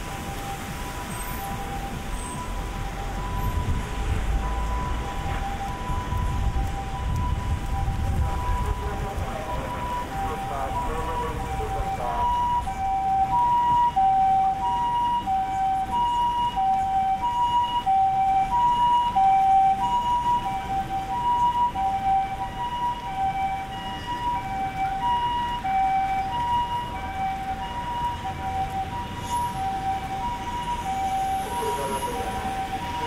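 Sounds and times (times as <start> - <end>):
two-tone ambulance siren: 0.0 - 33.0.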